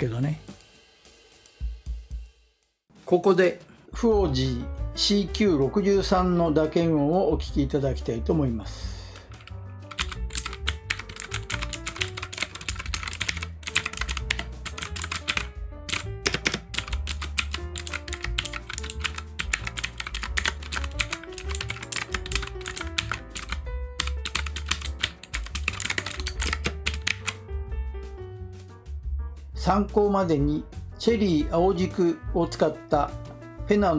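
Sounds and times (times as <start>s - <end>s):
background music: 0.0s - 2.0s, 2.9s - 33.9s
mechanical keyboard typing: 9.3s - 27.4s.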